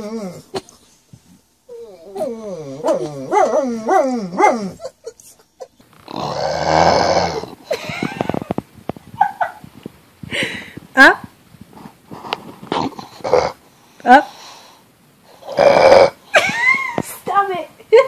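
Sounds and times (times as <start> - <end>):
dog hoarse grunt: 6.0 - 8.5, 12.6 - 13.6.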